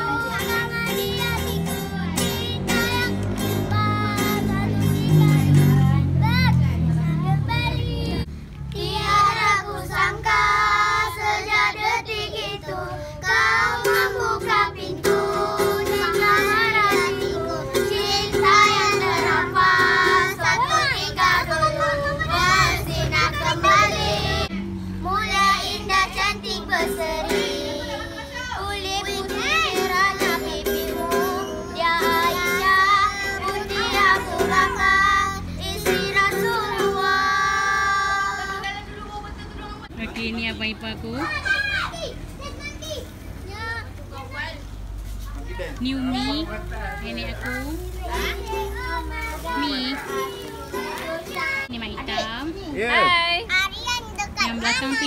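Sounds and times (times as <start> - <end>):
ukulele: 0.0 - 6.7, 7.6 - 24.6, 25.3 - 38.6, 47.8 - 51.7
children singing: 0.0 - 38.8, 47.8 - 51.7.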